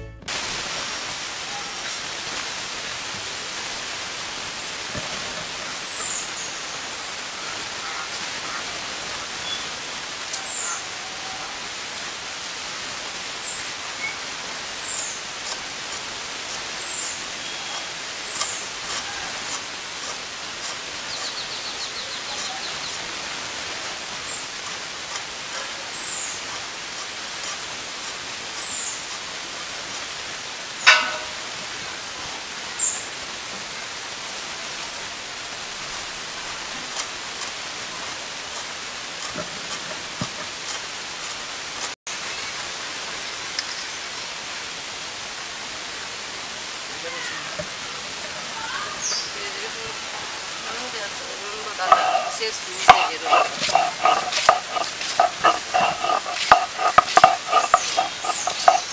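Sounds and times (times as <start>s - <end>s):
steady outdoor hiss: 0.2s - 58.9s
small birds chirping: 5.7s - 6.9s, 9.3s - 10.9s, 13.4s - 19.6s, 20.6s - 23.2s, 48.8s - 49.5s, 51.7s - 58.9s.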